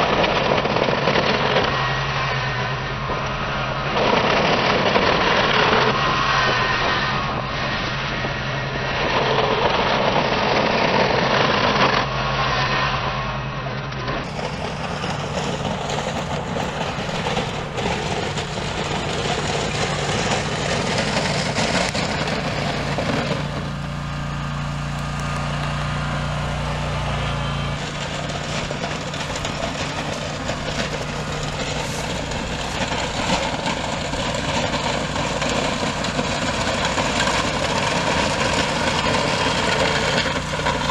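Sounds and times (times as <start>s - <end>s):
mower engine running: 0.0s - 40.9s
blade scraping through gravel: 14.2s - 40.9s.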